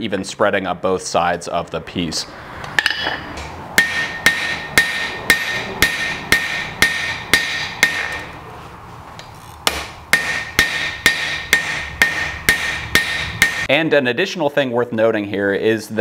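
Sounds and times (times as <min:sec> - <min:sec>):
hammer ringing on anvil: 0:03.8 - 0:08.2, 0:09.7 - 0:13.7.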